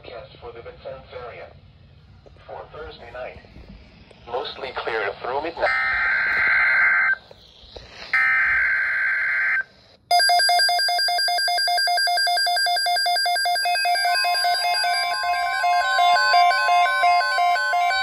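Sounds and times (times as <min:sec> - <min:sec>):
harsh data bursts: 0:03.1 - 0:10.1, 0:13.1 - 0:18.0
fast electronic beeping alarm: 0:05.6 - 0:18.0.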